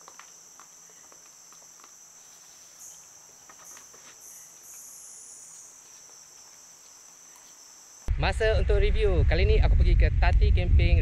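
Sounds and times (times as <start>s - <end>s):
buzzing insect calls falling in pitch: 0.0s - 8.1s
high-pitched insect buzzing: 0.0s - 8.1s.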